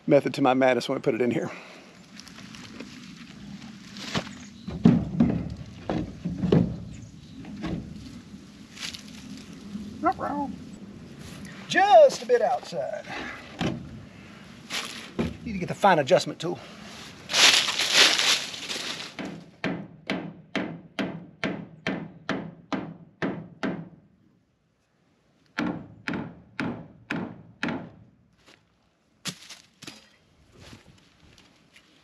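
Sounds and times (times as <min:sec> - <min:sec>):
rustle and scuff: 0:02.1 - 0:04.7, 0:05.5 - 0:09.8, 0:14.6 - 0:15.4, 0:16.9 - 0:19.4, 0:28.3 - 0:32.0.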